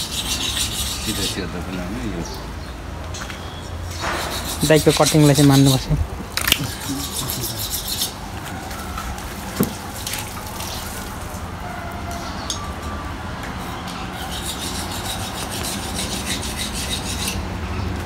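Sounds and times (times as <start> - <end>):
knife scraping through skin: 4.0 - 8.2.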